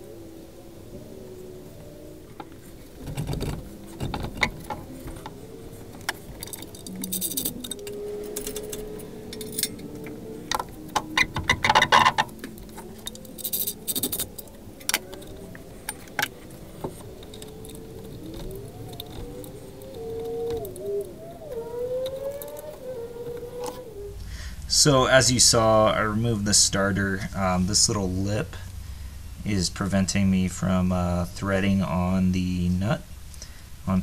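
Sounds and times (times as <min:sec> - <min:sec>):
metal tools clinking: 0:02.4 - 0:23.8.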